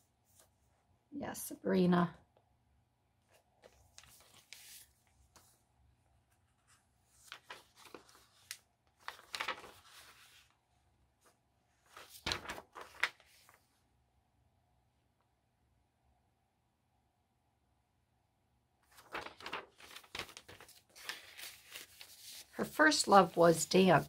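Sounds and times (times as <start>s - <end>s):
paper pages rustling: 3.2s - 5.6s, 6.2s - 10.6s, 11.2s - 13.7s, 18.8s - 24.0s.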